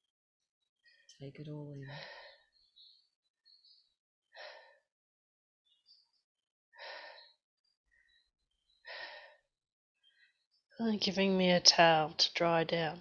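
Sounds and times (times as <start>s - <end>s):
woman breathing softly: 1.9s - 3.0s, 4.4s - 4.9s, 6.8s - 8.2s, 8.8s - 10.4s.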